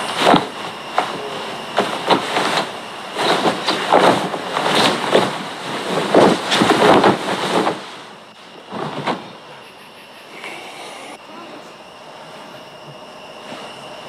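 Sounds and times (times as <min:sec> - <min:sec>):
bedding rustling: 0:00.0 - 0:09.5.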